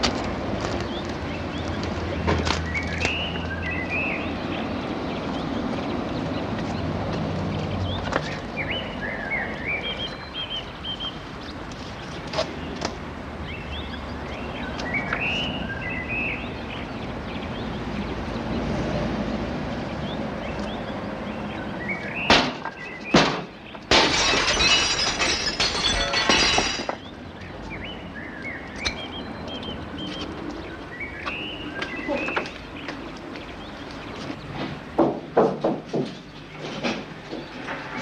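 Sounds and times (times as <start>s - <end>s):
birds chirping: 0.7s - 19.0s, 19.7s - 35.1s
sharp knocks on glass: 22.3s - 27.0s
glass breaking and shards tinkling: 23.9s - 27.0s.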